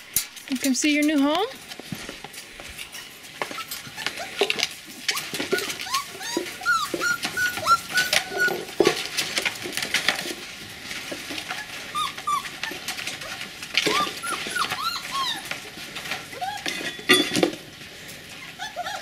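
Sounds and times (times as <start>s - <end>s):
puppies whimpering and whining: 2.8s - 9.2s, 11.4s - 17.3s, 18.3s - 19.0s.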